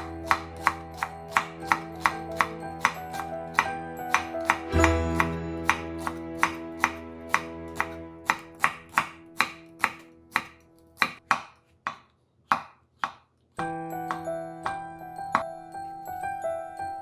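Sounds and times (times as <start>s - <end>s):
soft background music: 0.0s - 11.2s, 13.6s - 17.0s
knife chopping on wooden board: 0.0s - 13.4s, 14.0s - 15.5s.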